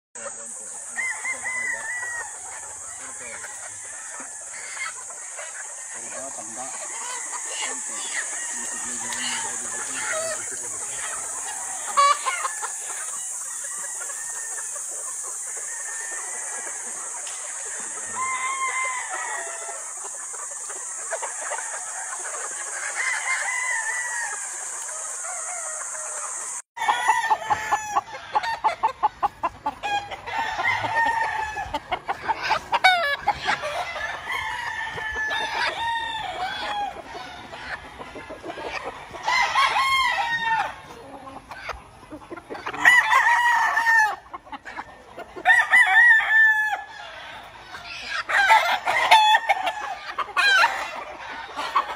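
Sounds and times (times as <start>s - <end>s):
chickens clucking: 0.2s - 51.9s
roosters crowing: 0.2s - 51.9s.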